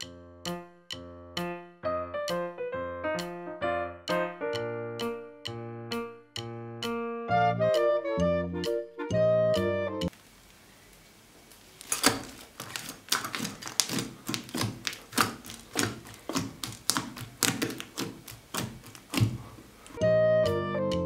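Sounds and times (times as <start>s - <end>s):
music: 0.0s - 10.1s, 20.0s - 21.0s
sticky slime clicks and pops: 11.8s - 20.0s.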